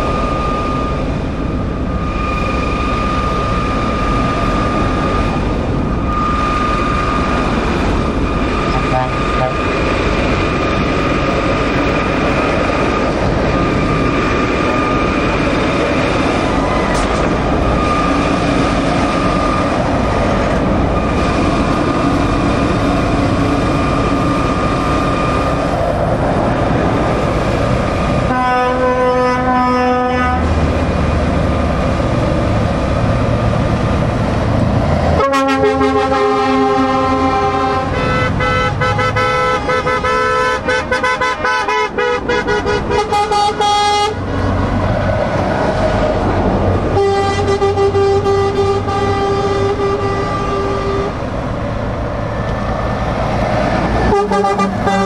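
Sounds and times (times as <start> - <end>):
lorries passing: 0.0 - 55.0
truck air horn: 8.7 - 9.8, 28.3 - 30.5, 35.2 - 44.2, 46.9 - 51.2, 54.0 - 55.0.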